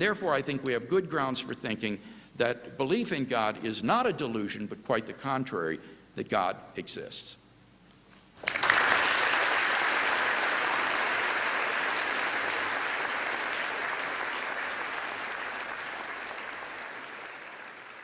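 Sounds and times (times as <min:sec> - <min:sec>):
audience applauding: 0:08.4 - 0:18.0.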